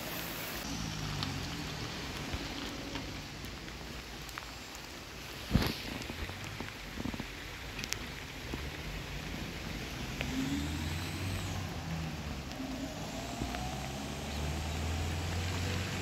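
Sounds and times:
light rain: 0.0 - 16.0
vehicle engine rumble: 0.0 - 16.0.

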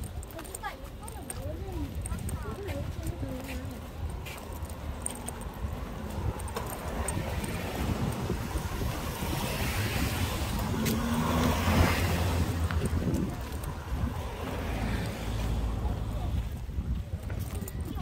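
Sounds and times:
car passing by: 5.9 - 16.4.

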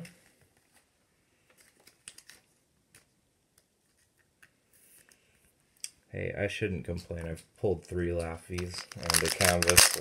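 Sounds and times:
cards clicking and rubbing: 8.6 - 10.0.

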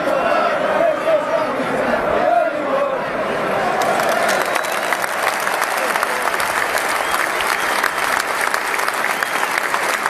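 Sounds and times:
crowd applauding: 3.6 - 10.0.

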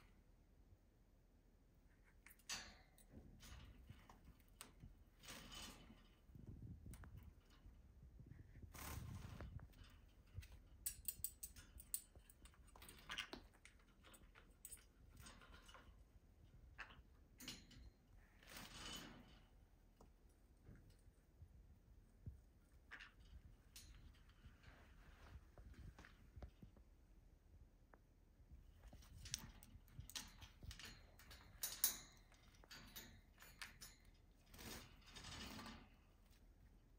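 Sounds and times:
bird climbing on wire cage: 2.2 - 21.0, 22.6 - 26.8, 28.8 - 36.5
bird clicking and tapping in cage: 10.4 - 16.0, 29.2 - 34.1
soft rustles: 18.1 - 31.6.

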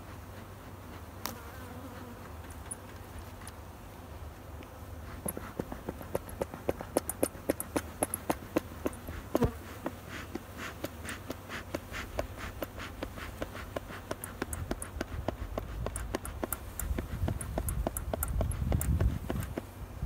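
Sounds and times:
sharp clicks and taps: 5.2 - 19.7.

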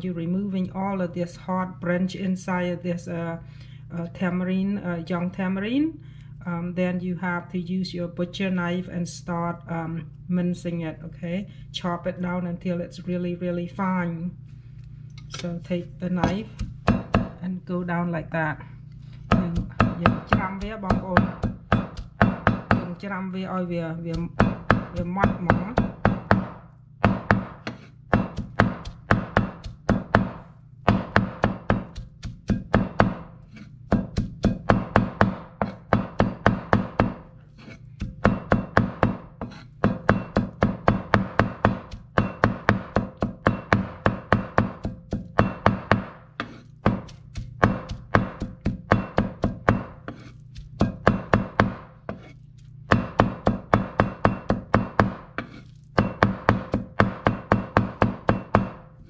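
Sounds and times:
cleaver chopping on wooden board: 16.2 - 17.4, 19.3 - 22.9, 24.1 - 33.3, 33.9 - 58.8.

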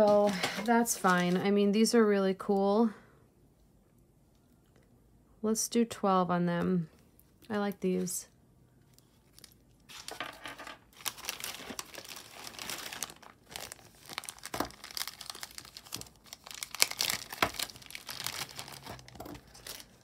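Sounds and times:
plastic bag crinkling: 0.0 - 1.5, 9.0 - 20.0.

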